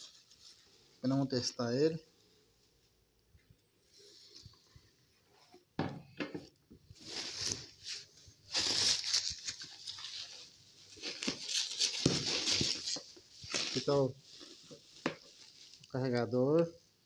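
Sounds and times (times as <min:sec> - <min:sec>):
bubble wrap crackling and rustling: 0:00.0 - 0:01.9, 0:06.9 - 0:16.8.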